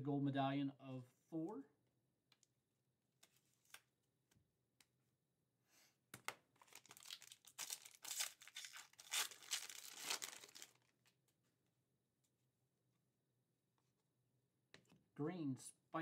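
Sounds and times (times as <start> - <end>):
foil wrapper tearing and crinkling: 6.6 - 10.9.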